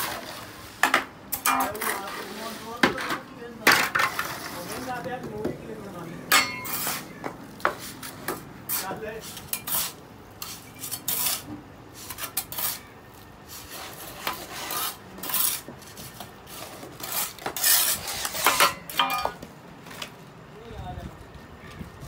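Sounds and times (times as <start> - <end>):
trowel scraping gritty cement: 0.0 - 5.2, 6.4 - 19.2.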